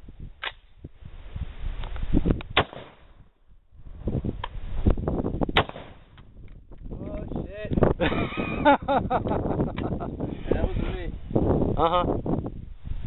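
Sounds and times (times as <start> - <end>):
rifle firing single shots: 2.5 - 3.2, 5.5 - 6.2.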